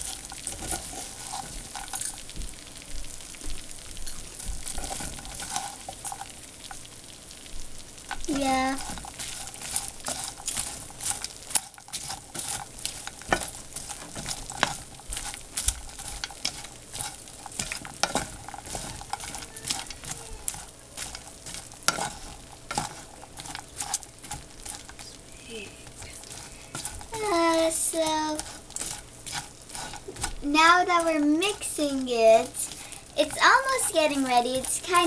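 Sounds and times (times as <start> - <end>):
wooden spatula scraping a pan: 0.0 - 2.3, 4.4 - 6.8, 8.0 - 25.2, 25.8 - 35.0
light sizzle: 0.0 - 35.0.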